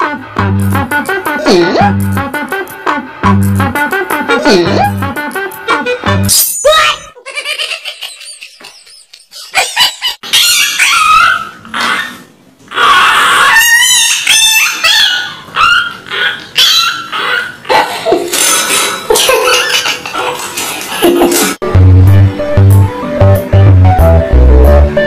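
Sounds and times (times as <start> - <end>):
dogs whining and yipping: 9.6 - 18.1.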